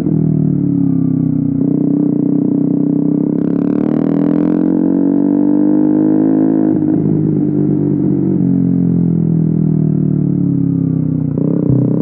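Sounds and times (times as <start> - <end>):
motorcycle engine revs dropping: 11.6 - 12.0.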